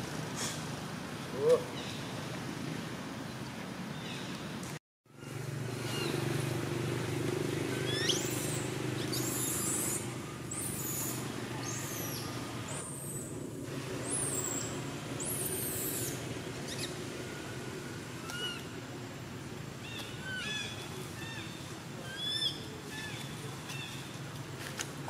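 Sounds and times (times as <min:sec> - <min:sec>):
low engine hum: 0:00.0 - 0:25.0
baby monkey screaming: 0:07.8 - 0:12.2.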